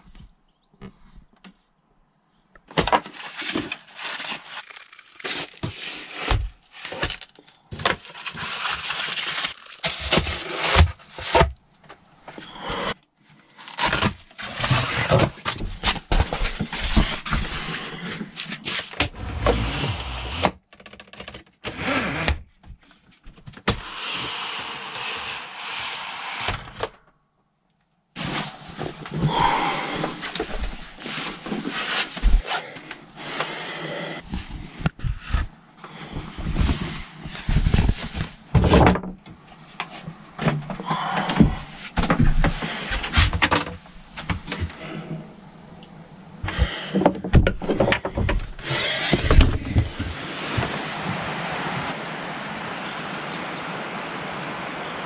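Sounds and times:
foil insulation crinkling: 3.0s - 11.6s, 13.3s - 19.0s, 34.4s - 38.6s.

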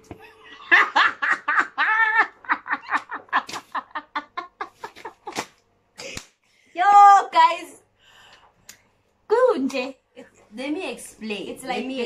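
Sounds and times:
people laughing hard: 0.6s - 5.4s.

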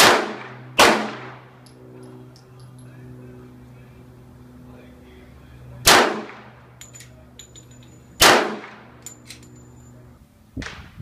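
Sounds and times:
pistol shots with echo: 0.0s - 1.4s, 5.8s - 6.5s, 8.2s - 8.8s.

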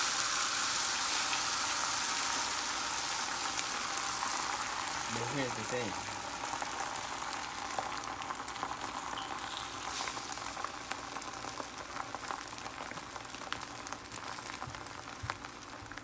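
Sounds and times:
egg sizzling in a pan: 0.0s - 16.0s.

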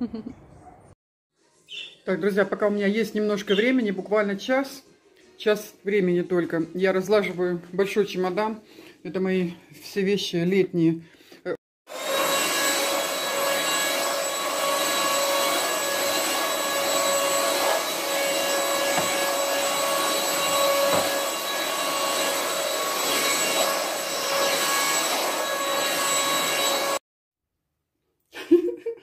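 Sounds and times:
vacuum cleaner running on rug: 11.9s - 27.0s.

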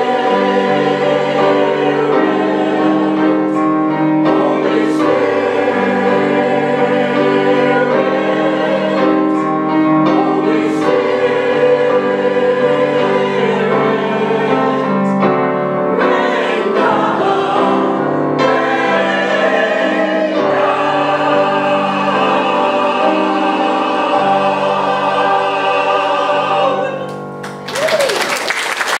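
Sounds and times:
choir singing a hymn: 0.0s - 27.4s
applause: 27.4s - 29.0s.

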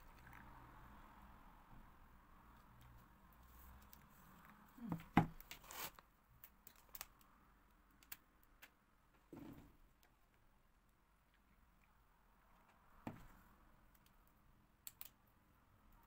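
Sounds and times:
small clicks: 13.9s - 15.2s.

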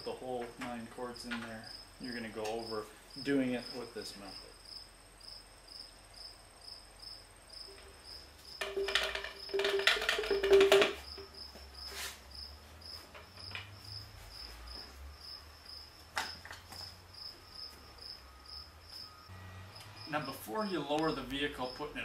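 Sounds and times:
cricket chirping: 1.2s - 22.0s.

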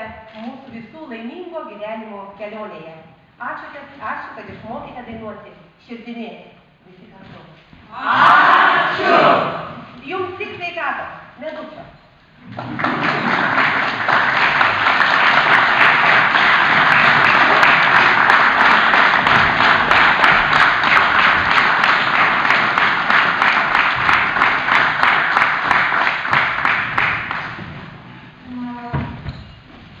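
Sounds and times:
audience applauding: 12.5s - 27.6s.

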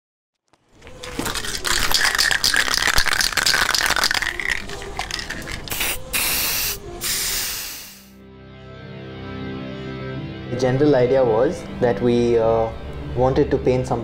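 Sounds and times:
spray can rattling: 0.8s - 8.1s
spray paint blasts: 1.9s - 8.2s.

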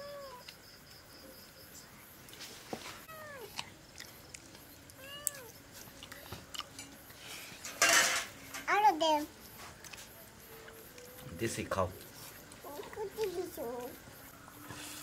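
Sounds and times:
cat meowing: 3.1s - 3.6s, 5.0s - 5.5s.

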